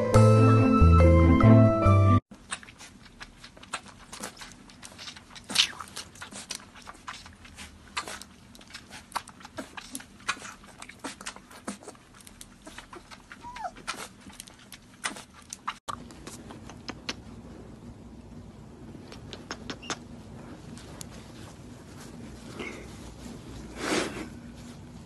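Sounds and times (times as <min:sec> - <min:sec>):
puppy suckling from bottle: 0:02.3 - 0:17.2
puppy squeak: 0:13.4 - 0:13.8.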